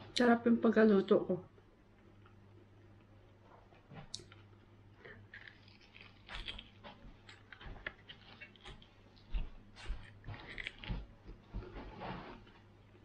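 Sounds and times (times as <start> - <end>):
person chewing meat: 4.1 - 11.6.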